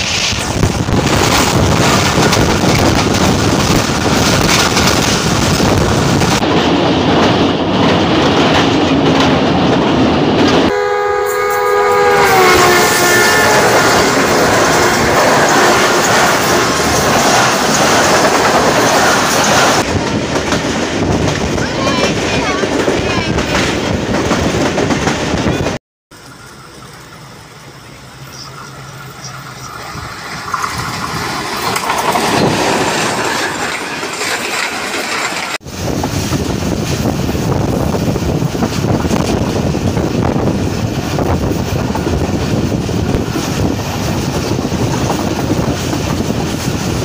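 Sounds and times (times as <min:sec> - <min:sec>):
train rumbling and clattering: 0:00.0 - 0:47.0
train whine falling in pitch: 0:10.5 - 0:17.0.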